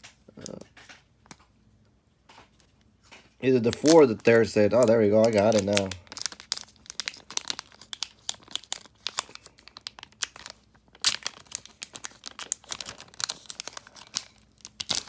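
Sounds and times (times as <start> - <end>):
foil pack crinkling and tearing: 3.4 - 15.0.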